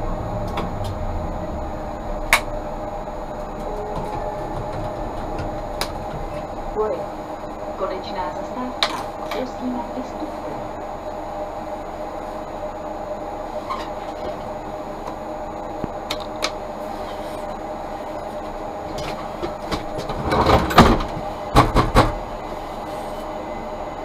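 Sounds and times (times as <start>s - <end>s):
tram electrical hum: 0.0s - 24.0s
clattering knocks and rattles: 3.4s - 6.6s, 18.9s - 22.2s.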